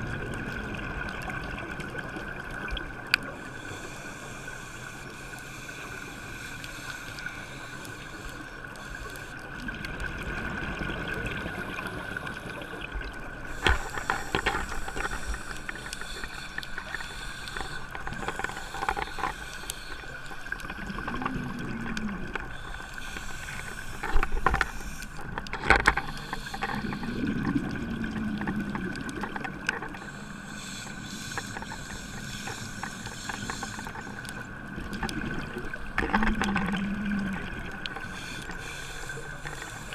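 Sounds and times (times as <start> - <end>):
faint steady whine: 0.0 - 39.9
scuba regulator breathing: 3.3 - 9.6, 11.6 - 27.6, 30.0 - 34.6, 36.2 - 39.9
rumble of exhaled bubbles: 9.6 - 13.6, 20.5 - 22.8, 25.2 - 29.8, 34.4 - 38.2.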